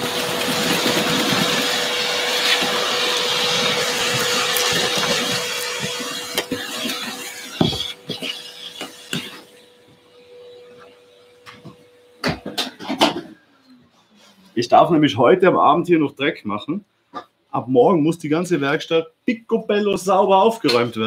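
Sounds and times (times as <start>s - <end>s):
vacuum cleaner running: 0.0s - 12.6s.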